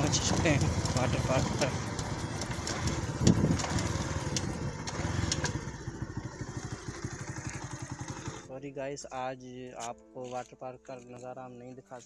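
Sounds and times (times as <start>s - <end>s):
small motorcycle engine running: 0.0s - 8.5s.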